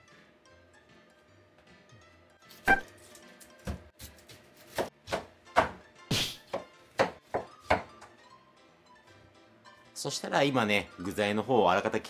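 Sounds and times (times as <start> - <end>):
faint background music: 0.0 - 12.0
knife chopping on cutting board: 3.6 - 8.1.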